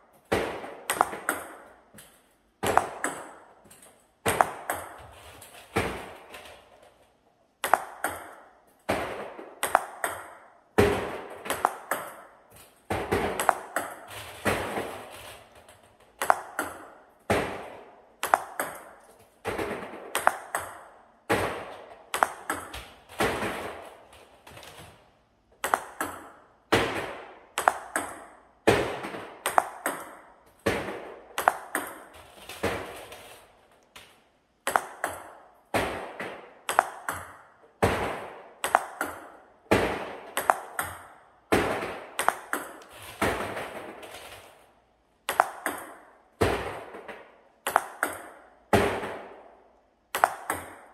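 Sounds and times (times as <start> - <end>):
table tennis ball bouncing: 0.2 - 6.3, 7.6 - 24.1, 25.5 - 33.0, 33.8 - 44.1, 45.2 - 50.9
paddle striking ball: 0.3 - 1.7, 2.6 - 3.4, 4.3 - 5.0, 7.6 - 12.3, 12.9 - 14.9, 16.2 - 17.6, 18.2 - 23.8, 25.6 - 32.9, 34.7 - 43.8, 45.3 - 49.3, 50.2 - 50.9.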